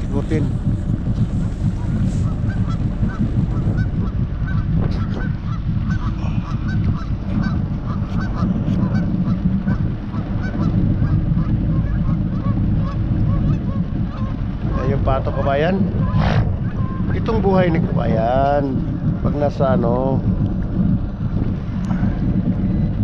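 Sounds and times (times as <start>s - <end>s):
steady low rumble: 0.0s - 23.0s
geese honking: 1.8s - 19.0s.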